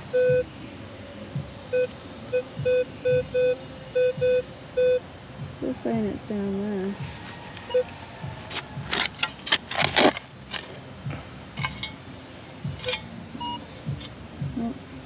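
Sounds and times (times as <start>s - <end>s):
metal detector beep: 7.7s - 7.9s
spade digging into soil: 8.5s - 10.7s, 11.6s - 12.0s, 12.8s - 13.1s.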